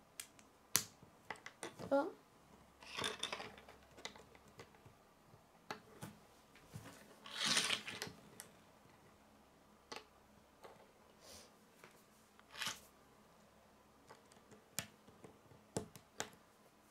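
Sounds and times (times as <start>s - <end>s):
plastic bricks clicking on table: 0.2s - 1.9s, 2.8s - 4.9s, 7.2s - 9.0s, 9.8s - 10.9s.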